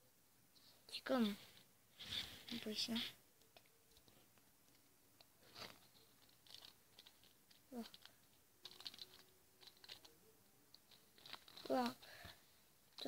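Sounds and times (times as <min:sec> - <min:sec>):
plastic bags crinkling: 0:05.4 - 0:10.1, 0:10.9 - 0:12.2.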